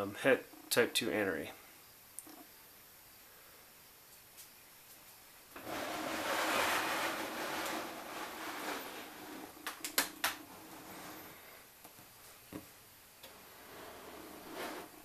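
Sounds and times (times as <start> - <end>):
plastic tub scraping along shelf: 5.6 - 9.8, 10.4 - 11.4, 13.3 - 15.0.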